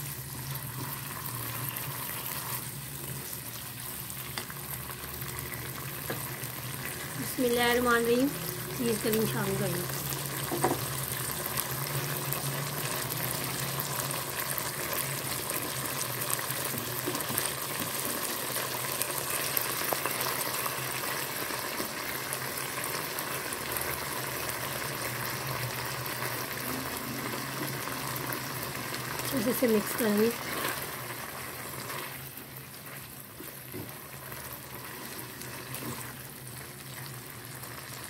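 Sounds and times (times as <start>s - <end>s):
meat sizzling in a wok: 0.0s - 38.0s
spatula stirring in a wok: 29.4s - 38.0s.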